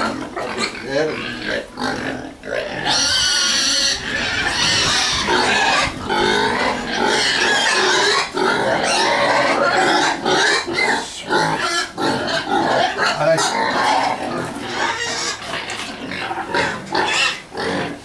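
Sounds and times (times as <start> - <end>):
young pigs squealing: 0.0 - 18.0.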